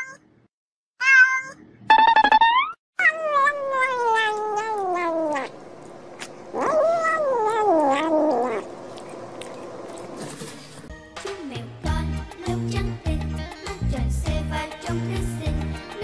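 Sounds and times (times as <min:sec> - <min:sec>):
cat meowing: 0:03.0 - 0:05.5, 0:06.6 - 0:08.7.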